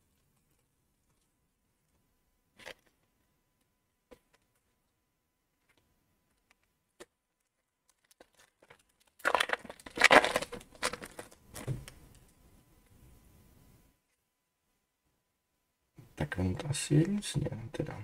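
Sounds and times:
foil wrapper crinkling and tearing: 7.4 - 11.8.

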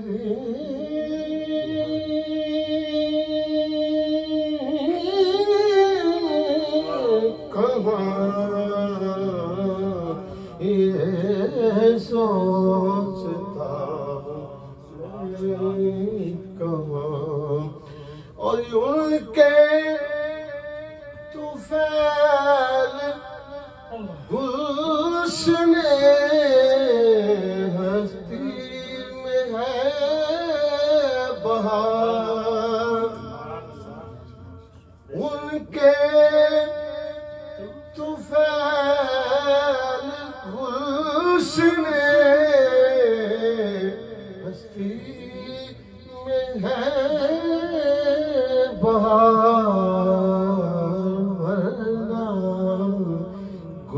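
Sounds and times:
man chanting unaccompanied: 0.0 - 53.9.

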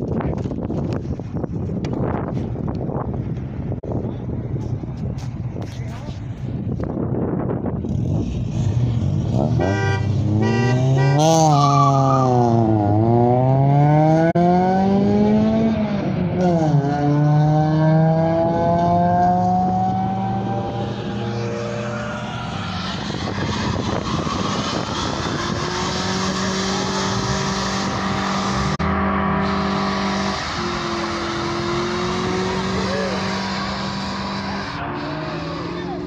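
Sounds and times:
car engine revving hard: 7.9 - 36.0.

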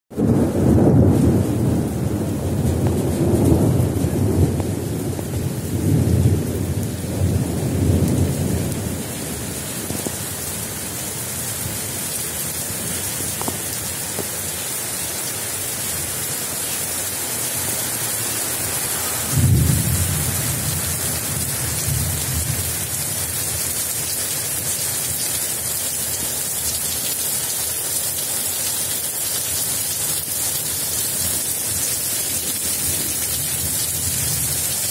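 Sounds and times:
thunder rumbling: 0.1 - 11.9, 18.6 - 23.8
heavy rain hiss: 2.6 - 34.9.

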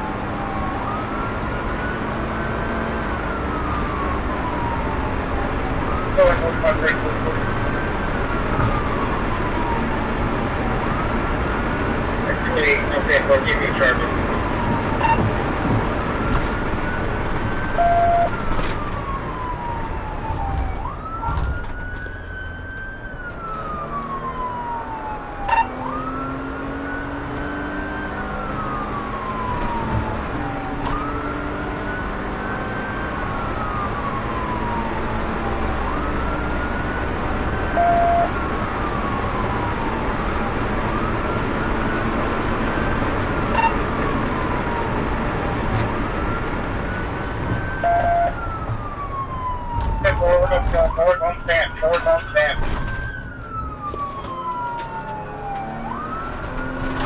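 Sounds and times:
car engine and road noise: 0.0 - 57.0
police siren wailing: 0.0 - 57.0
short beeps: 15.0 - 15.2, 17.8 - 18.3, 37.8 - 38.3, 43.6 - 43.8, 47.8 - 48.3.

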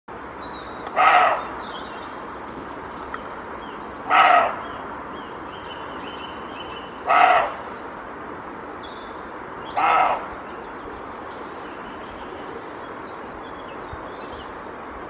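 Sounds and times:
deer barking: 0.9 - 1.5, 4.0 - 4.6, 7.0 - 7.6, 9.8 - 10.3.

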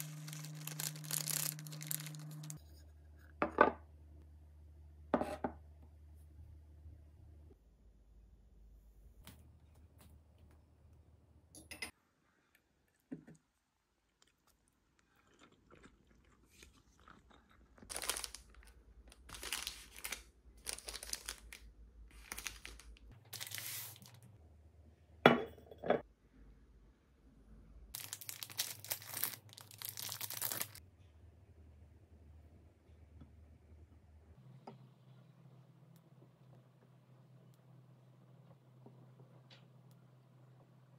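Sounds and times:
crinkling and rustling handling: 0.0 - 2.6, 16.5 - 24.4, 28.0 - 30.8.

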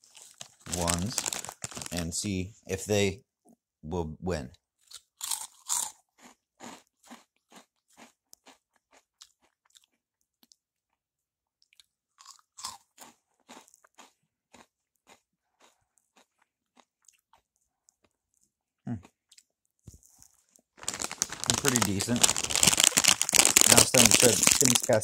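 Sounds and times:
crunchy snack chewing: 0.0 - 2.1, 4.8 - 10.6, 11.6 - 25.0.

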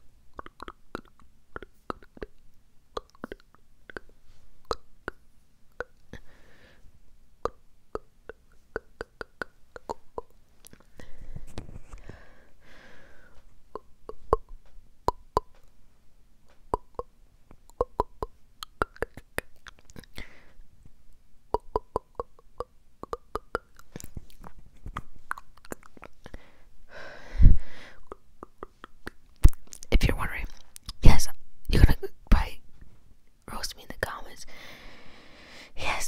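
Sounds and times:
lip pops: 0.3 - 2.4, 16.6 - 20.2, 28.0 - 29.9
wet tongue clicks: 0.3 - 6.2, 7.4 - 10.9, 13.7 - 15.8, 16.7 - 20.2, 21.5 - 26.4, 28.0 - 30.0.

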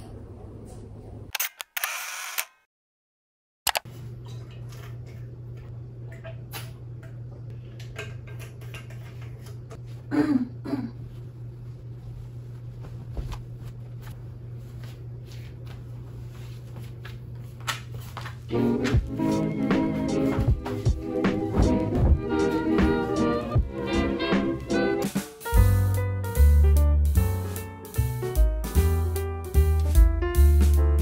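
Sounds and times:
low room hum: 3.9 - 24.8
bedding rustling: 11.6 - 17.0.

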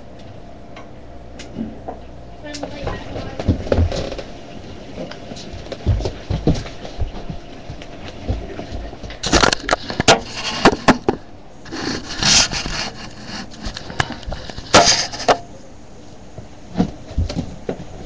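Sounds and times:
rubbing scrapes: 9.8 - 11.0, 11.7 - 15.4.

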